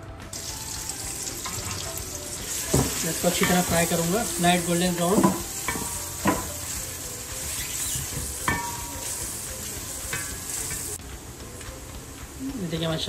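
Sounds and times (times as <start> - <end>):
onions sizzling in hot oil: 0.3 - 13.0
spatula knocking against pot: 5.1 - 6.6.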